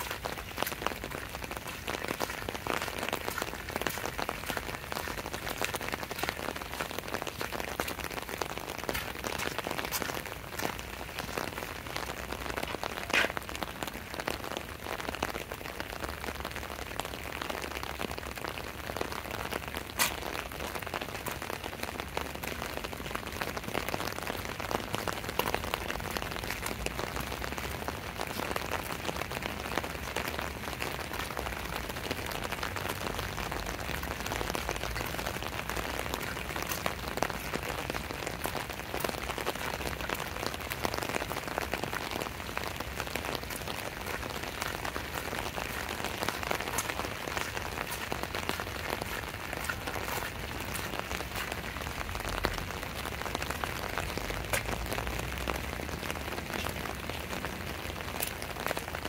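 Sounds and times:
steady rain falling: 0:00.0 - 0:59.0
single raindrops tapping: 0:24.2 - 0:59.0.

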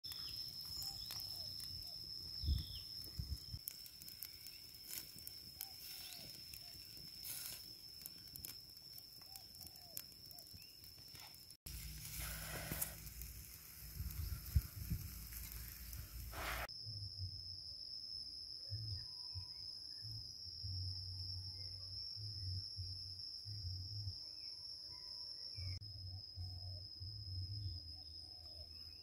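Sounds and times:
wood fire crackling and popping: 0:00.0 - 0:16.7.

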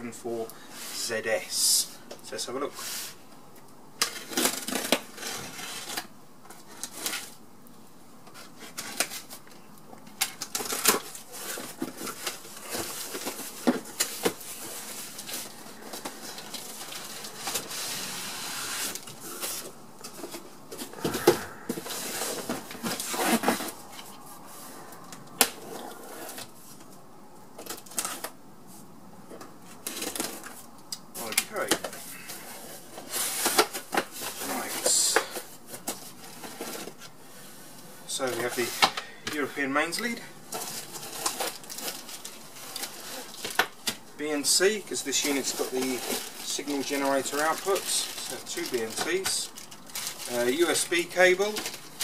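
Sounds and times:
cardboard rustling and scraping: 0:04.1 - 0:07.4, 0:10.4 - 0:26.9, 0:31.2 - 0:52.0.

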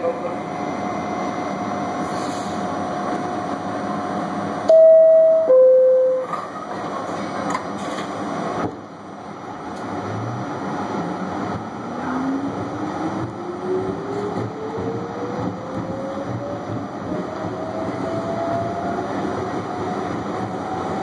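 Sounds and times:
train rumbling on rails: 0:00.0 - 0:21.0
subway train horn blasts: 0:04.7 - 0:06.4.

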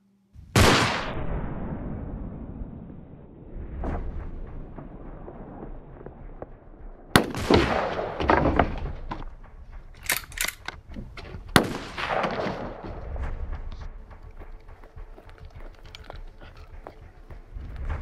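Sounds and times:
echoing gunshots: 0:00.6 - 0:02.8, 0:07.1 - 0:10.8, 0:11.5 - 0:13.6.

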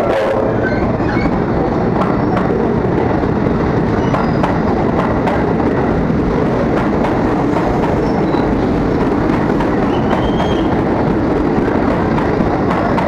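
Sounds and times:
electric train rumbling past: 0:00.0 - 0:13.0
wheels clicking over rail joints: 0:04.0 - 0:13.0.

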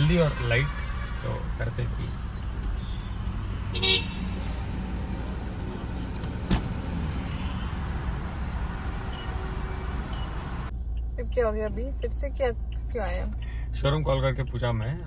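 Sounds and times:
car horn toot: 0:00.0 - 0:01.6, 0:02.8 - 0:04.4
car engine and tyre rumble: 0:00.0 - 0:15.0.

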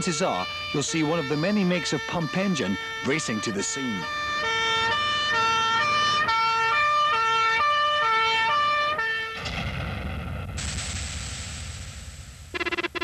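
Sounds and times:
two-tone fire engine siren: 0:00.0 - 0:09.4, 0:12.5 - 0:13.0
low rumble: 0:09.4 - 0:12.6.

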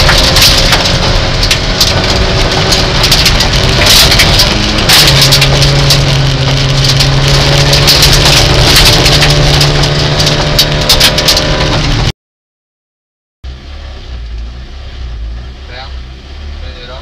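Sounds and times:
car engine running loud: 0:00.0 - 0:12.1, 0:13.4 - 0:17.0
gravel rattling against car underbody: 0:00.0 - 0:12.1.

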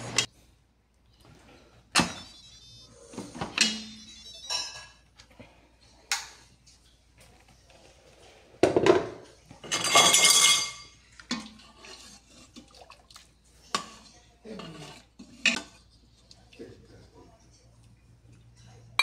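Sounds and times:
metal spoon clinking in a pot: 0:09.6 - 0:12.1.

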